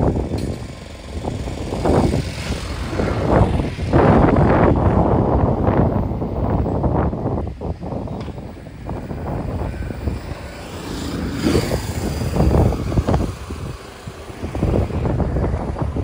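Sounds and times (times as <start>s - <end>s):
wind buffeting microphone: 0.0s - 16.0s
vehicle passing by: 8.9s - 16.0s.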